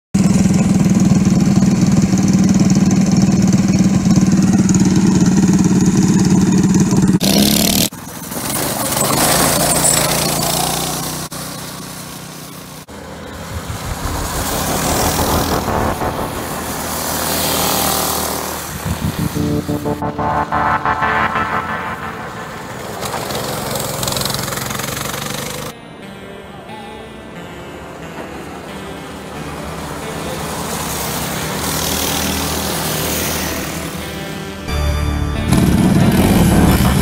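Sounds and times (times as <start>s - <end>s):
mini bike engines running: 0.2s - 13.8s, 23.5s - 25.7s, 27.8s - 34.4s
small engines driving past: 0.2s - 20.2s, 28.4s - 34.4s.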